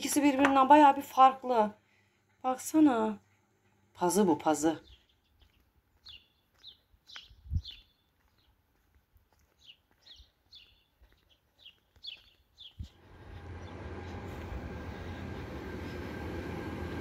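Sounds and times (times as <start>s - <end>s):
songbirds chirping: 0.0s - 17.0s
low engine rumble: 12.9s - 17.0s.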